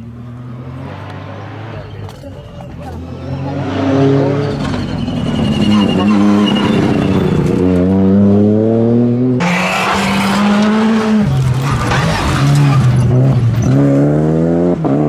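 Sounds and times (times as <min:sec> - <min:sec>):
rally car engines revving: 0:00.0 - 0:15.0
tyres sliding on gravel: 0:09.5 - 0:13.1.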